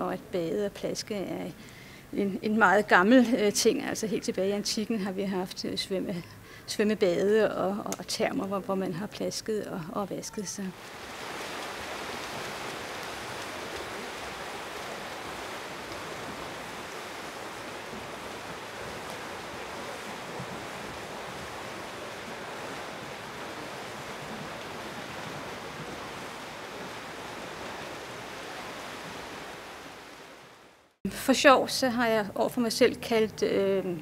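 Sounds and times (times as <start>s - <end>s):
rushing water: 10.3s - 31.0s.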